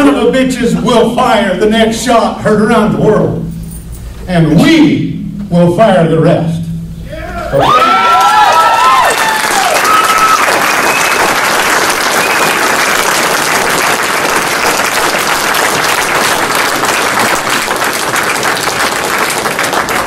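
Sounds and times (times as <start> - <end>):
crowd cheering: 7.2 - 20.0
crowd applauding: 7.6 - 20.0.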